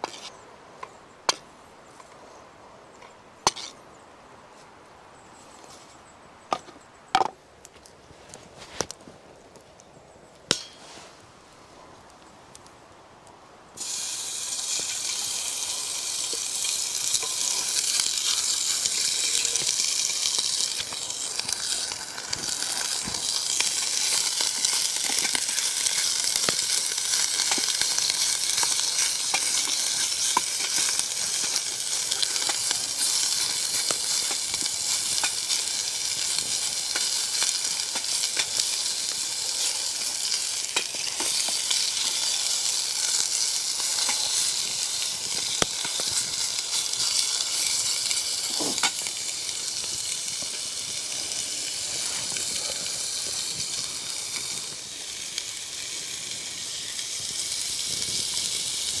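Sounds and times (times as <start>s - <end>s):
wooden spatula scraping and tapping: 0.0s - 1.4s, 3.5s - 3.8s
food sizzling in a hot pot: 13.8s - 59.0s.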